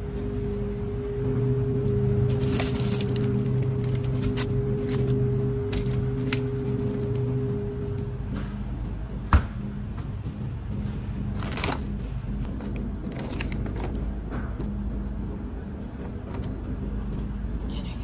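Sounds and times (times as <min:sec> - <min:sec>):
steady low hum: 0:00.0 - 0:18.0
plastic wrapping crinkling: 0:02.3 - 0:07.3.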